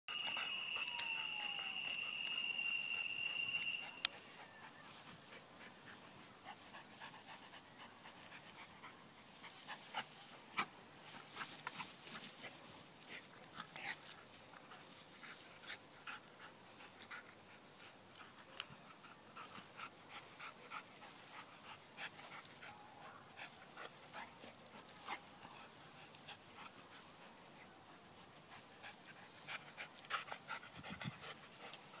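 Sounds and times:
rustling: 4.8s - 18.7s
dog panting: 11.4s - 32.0s.

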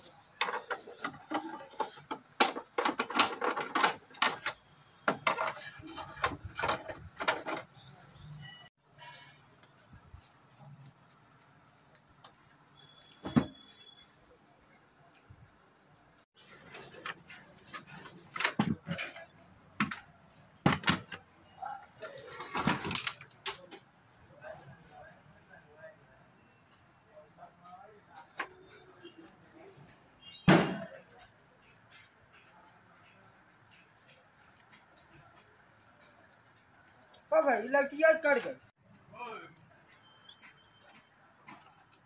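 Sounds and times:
plastic parts clacking and knocking: 0.0s - 7.9s, 16.4s - 21.3s, 22.0s - 23.9s
plastic cabinet being handled: 0.4s - 7.7s.

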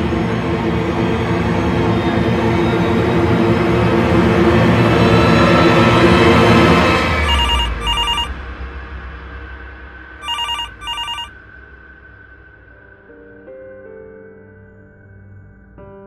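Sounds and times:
telephone ringing: 7.2s - 8.3s, 10.2s - 11.3s
faint held tone: 7.3s - 8.3s, 10.2s - 11.3s.

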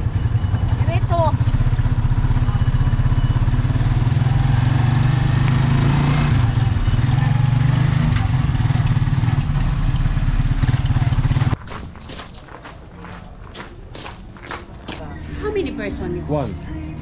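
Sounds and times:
motorcycle engine running: 0.0s - 11.6s.

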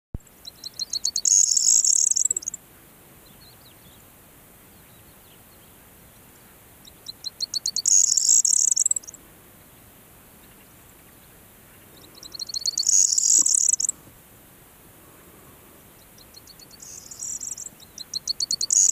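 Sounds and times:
bird song with rattle: 0.3s - 2.6s, 6.8s - 9.2s, 10.4s - 14.0s, 16.0s - 18.9s.

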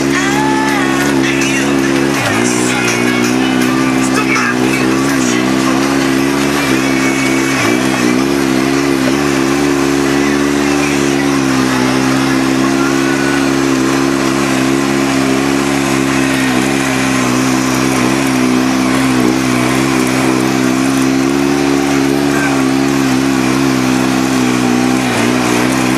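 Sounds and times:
utility vehicle engine pulling: 0.0s - 25.9s.

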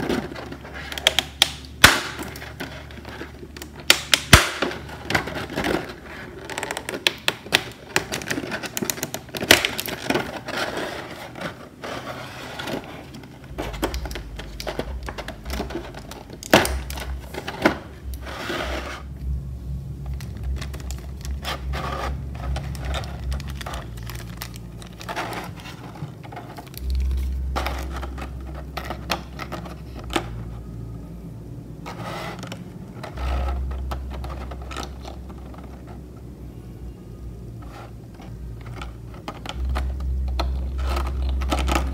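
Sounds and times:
plastic packaging crinkling and clicking: 0.0s - 19.3s, 20.0s - 30.8s, 31.8s - 36.3s, 37.5s - 41.9s
low rumble: 11.8s - 41.9s.

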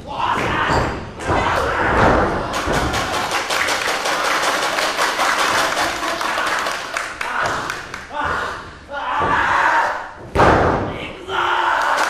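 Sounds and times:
audience clapping rhythmically: 2.5s - 8.1s.

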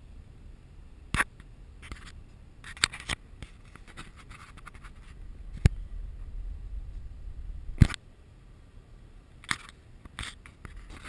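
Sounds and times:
scratchy rustling: 1.8s - 5.2s
car cabin rumble: 4.8s - 8.0s.

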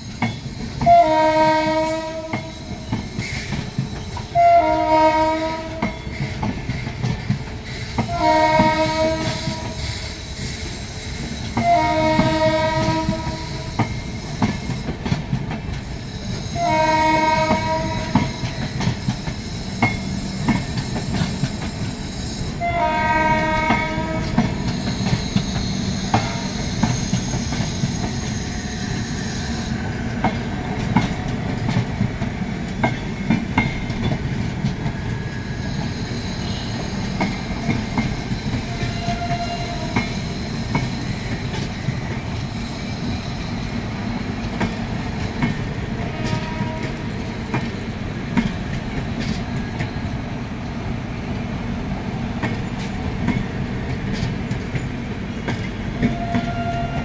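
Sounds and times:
train rumble: 0.0s - 57.0s
train wheels clicking over rail joints: 0.0s - 57.0s
train horn blasts: 0.8s - 2.8s, 4.3s - 6.0s, 8.1s - 9.9s, 11.6s - 13.7s, 16.5s - 18.6s, 22.6s - 24.6s, 38.6s - 40.2s, 46.0s - 47.2s, 55.9s - 57.0s.

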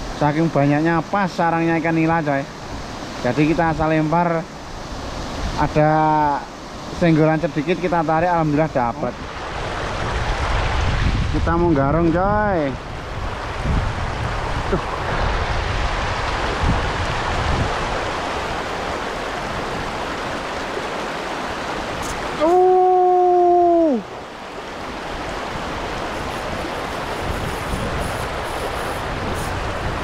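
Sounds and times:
stream rushing over stones: 0.0s - 30.0s
wind rumbling on microphone: 9.0s - 30.0s
person shouting: 22.4s - 24.1s.

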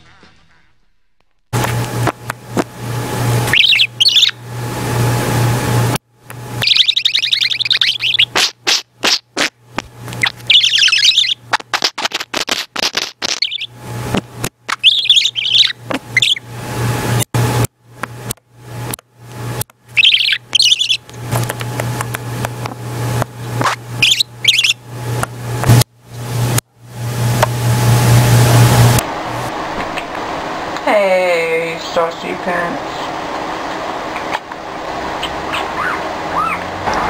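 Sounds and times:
budgerigar warbling and chattering: 3.5s - 4.4s, 6.6s - 9.3s, 10.2s - 11.9s, 12.9s - 13.7s, 14.7s - 16.4s, 20.0s - 21.0s, 23.6s - 24.8s, 35.2s - 37.0s
sharp clicks and taps: 21.1s - 23.3s.

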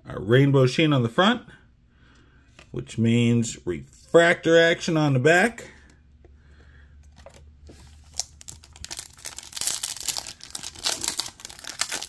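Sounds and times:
foil wrapper tearing and crinkling: 7.9s - 12.0s.

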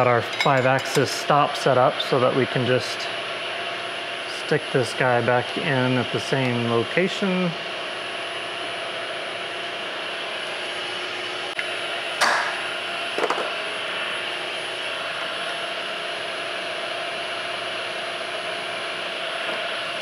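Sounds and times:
milling machine spindle running: 0.0s - 12.1s.

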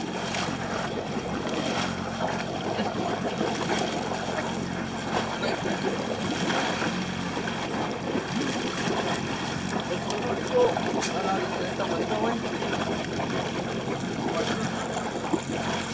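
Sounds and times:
boat engine running: 0.0s - 15.9s
water sloshing against hull: 0.0s - 15.9s.

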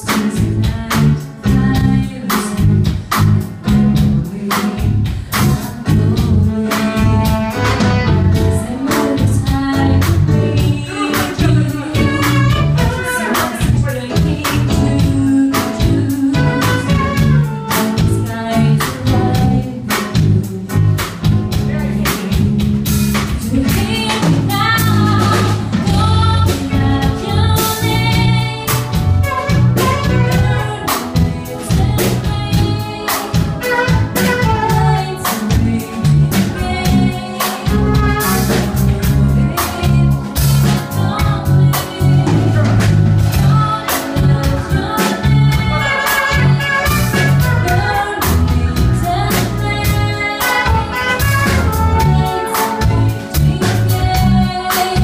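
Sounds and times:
woman singing: 0.0s - 3.1s, 4.0s - 55.0s
bass guitar: 0.0s - 55.0s
drum kit: 0.0s - 55.0s
electric keyboard: 0.0s - 55.0s.

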